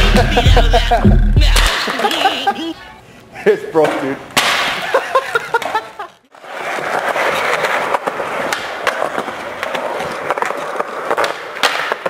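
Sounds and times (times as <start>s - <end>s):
skateboard wheels rolling: 5.5s - 12.0s.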